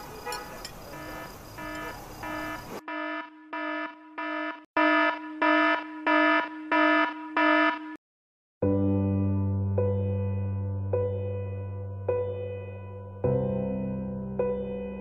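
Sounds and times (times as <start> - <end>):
pulsed electronic alarm beeps: 0.9 - 8.0.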